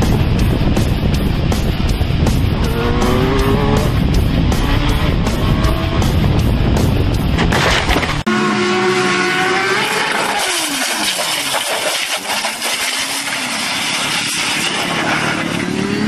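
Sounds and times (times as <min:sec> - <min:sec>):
motorcycle engines running: 0:00.0 - 0:10.6.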